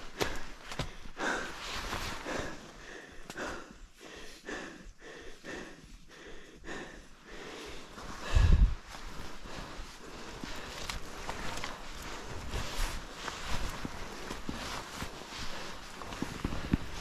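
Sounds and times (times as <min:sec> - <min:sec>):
footsteps on trail: 0:00.0 - 0:02.4
person breathing hard: 0:00.0 - 0:17.0.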